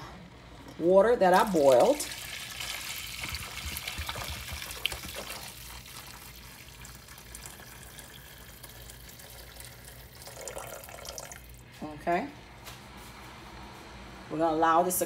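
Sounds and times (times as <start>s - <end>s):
water pouring from a kettle: 1.3s - 11.6s.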